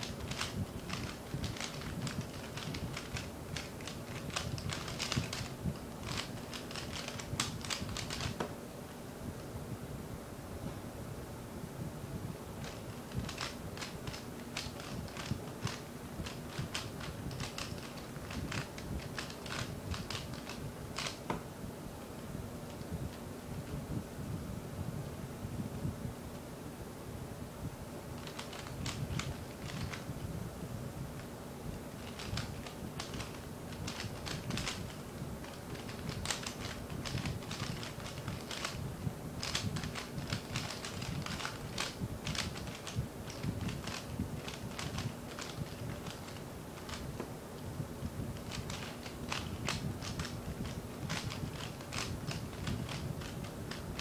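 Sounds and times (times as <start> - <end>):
puzzle cube plastic clicks: 0.0 - 8.4, 12.6 - 21.2, 28.2 - 30.0, 32.0 - 38.8, 39.4 - 47.1, 48.4 - 54.0.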